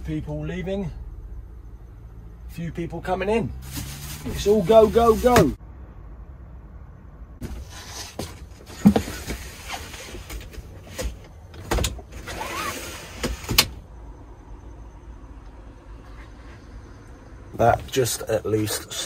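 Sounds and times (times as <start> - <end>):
rustling: 3.6 - 5.6.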